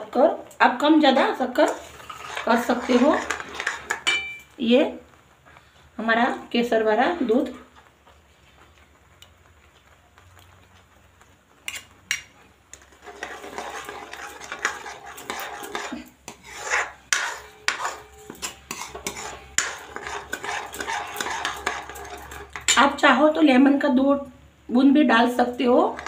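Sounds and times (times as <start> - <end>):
metal spoon scraping a metal pan: 1.0 - 4.5, 11.6 - 23.0, 25.3 - 26.0.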